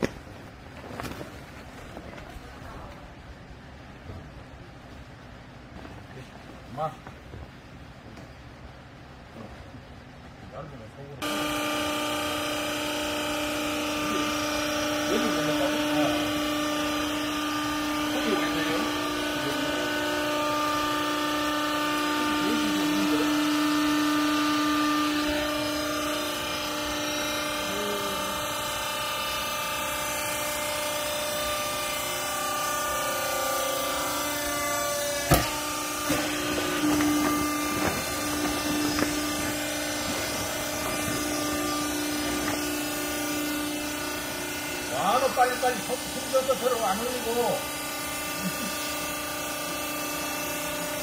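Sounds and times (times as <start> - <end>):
hydraulic pump humming: 0.0 - 10.6, 11.2 - 51.0.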